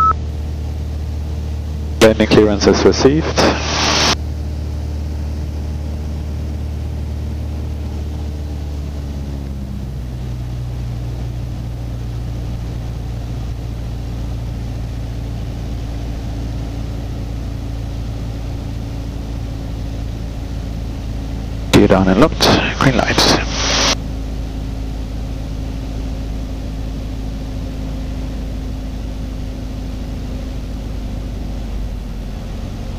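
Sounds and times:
aircraft engine and propeller droning: 0.0 - 32.9.

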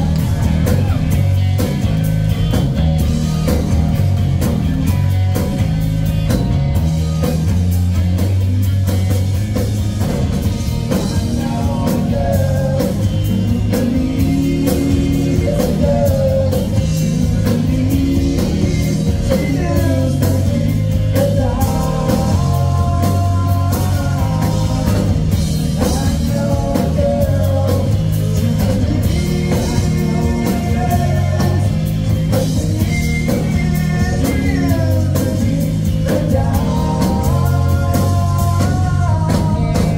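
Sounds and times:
bass guitar: 0.0 - 39.9
drum kit: 0.0 - 39.9
electric guitar: 0.0 - 39.9
person singing: 10.8 - 39.9.

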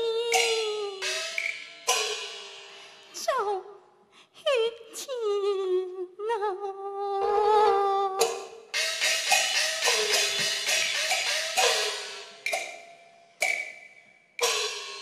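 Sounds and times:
gong and cymbal strikes: 0.4 - 3.1, 8.8 - 12.6.

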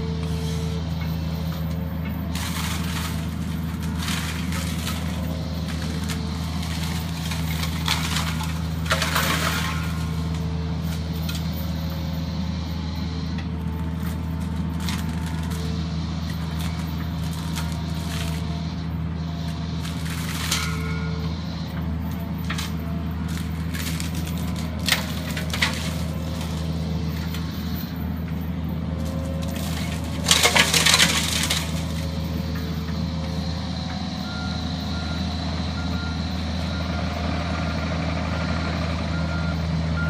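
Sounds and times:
mulcher cracking and shredding wood: 0.0 - 34.0
diesel engine running: 0.0 - 40.0.

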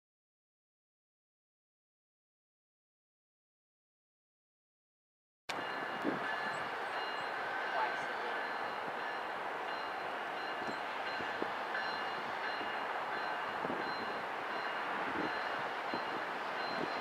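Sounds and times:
diesel locomotive idling: 5.5 - 17.0.

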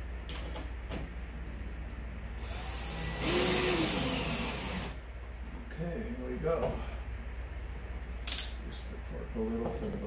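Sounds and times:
drill driving screw into metal: 2.4 - 5.0.

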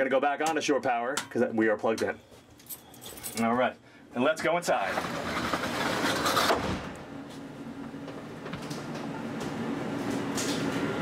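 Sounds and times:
low machine hum: 6.6 - 11.0.

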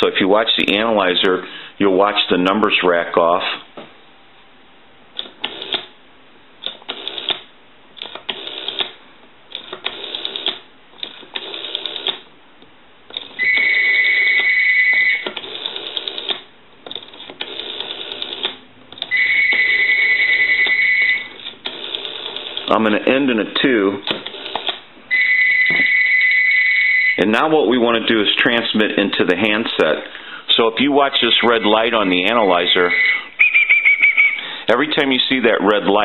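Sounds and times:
loud high telephone tone: 13.4 - 15.4, 19.1 - 21.4, 25.1 - 27.2, 32.7 - 34.4.

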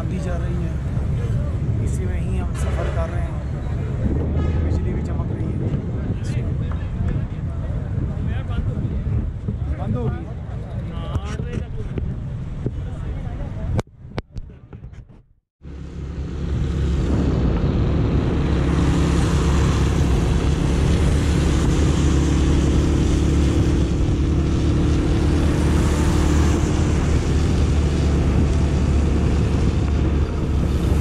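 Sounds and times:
wind rushing over microphone: 0.0 - 31.0.

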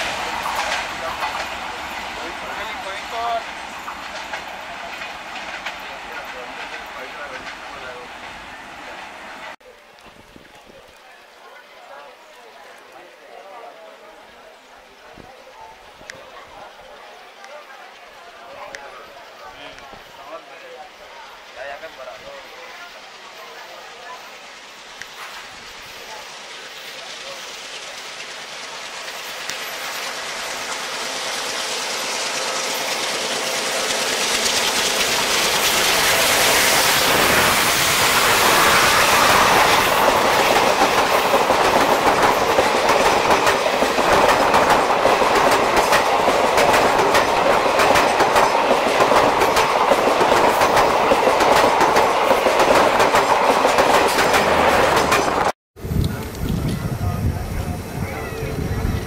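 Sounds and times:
clatter of train wheels: 0.0 - 8.0, 24.4 - 57.4
train passing: 0.0 - 9.6, 12.5 - 59.0.

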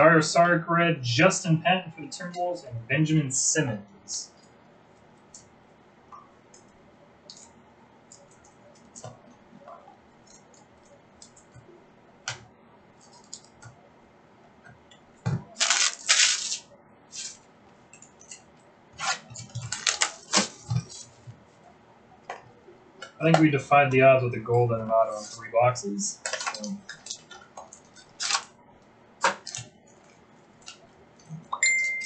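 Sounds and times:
wrappers crinkling and tearing: 15.6 - 17.4, 19.0 - 21.2, 26.2 - 28.5.

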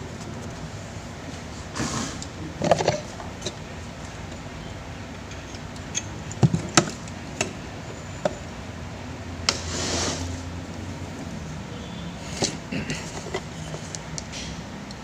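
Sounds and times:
rustling scrape: 9.5 - 10.5.

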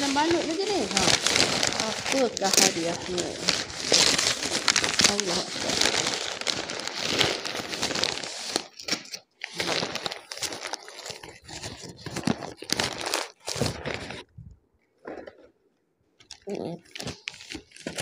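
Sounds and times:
wrapping paper tearing and rustling: 0.0 - 14.3, 16.8 - 18.0.

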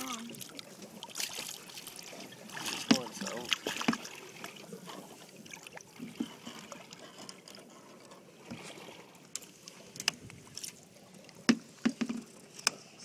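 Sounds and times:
water lapping against boat: 0.0 - 13.0
faint clicks and knocks: 9.3 - 10.8, 11.4 - 12.9.

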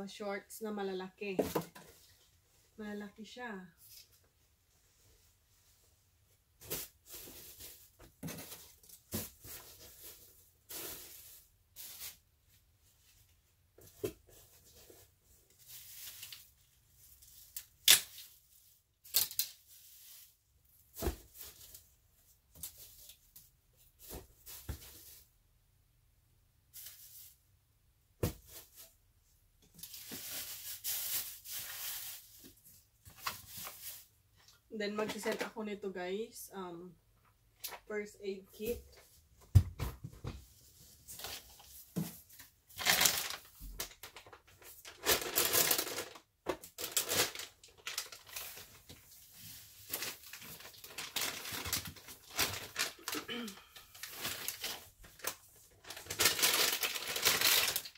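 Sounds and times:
plastic bags crinkling: 42.4 - 57.9.

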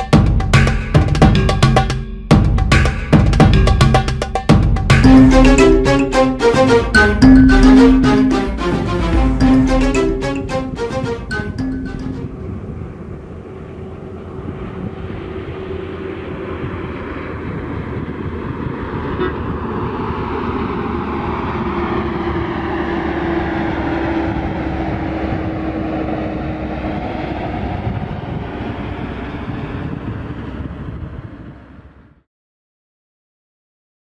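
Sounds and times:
bus engine and tyre noise: 12.1 - 32.2.

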